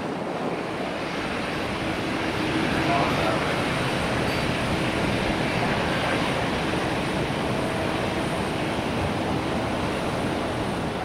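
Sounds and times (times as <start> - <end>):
distant jet engines rumbling: 0.1 - 11.0.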